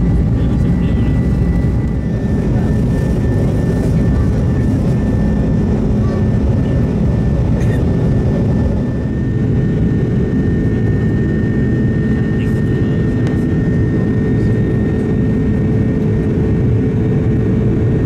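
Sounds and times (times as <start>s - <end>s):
faint high whine: 0.0s - 5.6s
jet engine roar in cabin: 0.0s - 18.0s.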